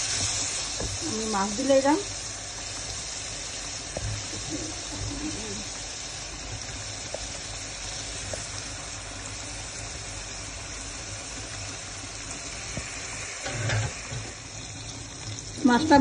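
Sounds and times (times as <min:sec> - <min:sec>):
curry bubbling and sizzling: 0:00.0 - 0:16.0.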